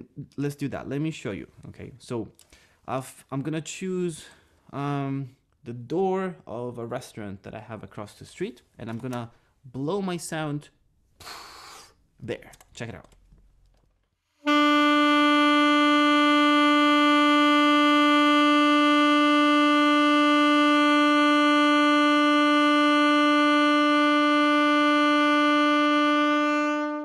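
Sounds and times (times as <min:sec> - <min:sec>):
saxophone long held note: 0:14.4 - 0:27.0.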